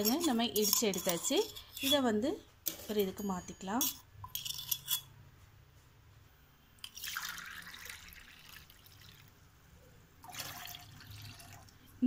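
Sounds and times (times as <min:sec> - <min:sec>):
spoon clinking steel cups: 0:00.0 - 0:02.1, 0:02.7 - 0:05.1.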